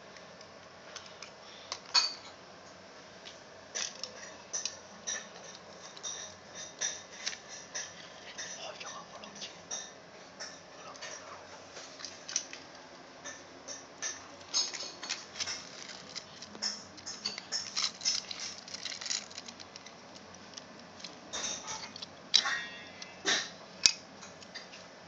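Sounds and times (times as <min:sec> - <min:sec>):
toy cars clicking and clacking: 0:14.6 - 0:22.5.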